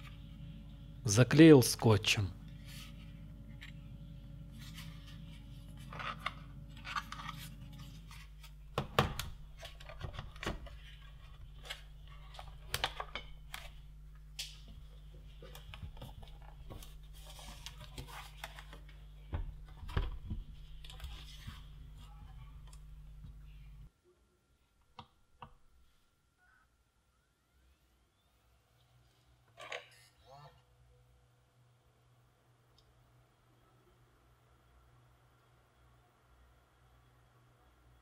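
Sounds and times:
plastic battery pack handling: 5.7s - 14.6s.

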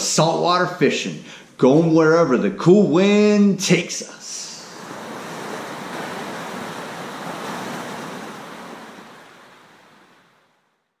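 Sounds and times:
ocean surf washing in: 4.3s - 10.9s.

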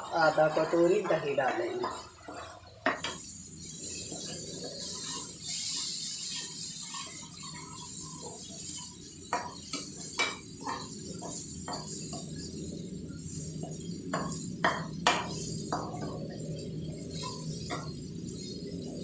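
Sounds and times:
masala sizzling in a pan: 0.0s - 19.0s
metal spatula scraping a pan: 0.2s - 12.5s.

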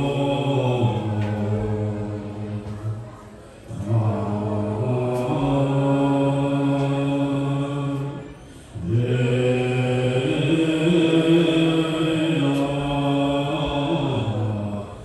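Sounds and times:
low mantra chanting: 0.0s - 3.1s, 3.7s - 15.0s.

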